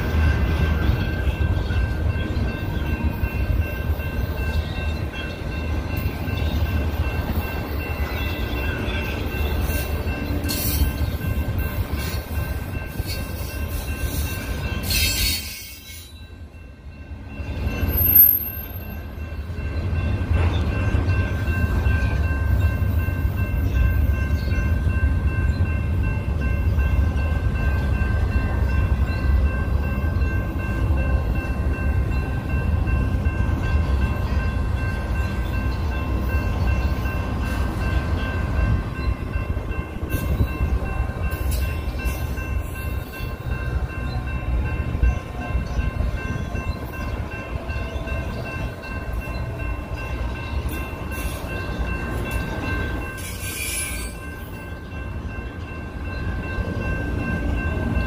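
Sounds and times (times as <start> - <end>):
train wheels rumbling on rails: 0.0 - 58.0
high ringing tones: 1.2 - 20.2.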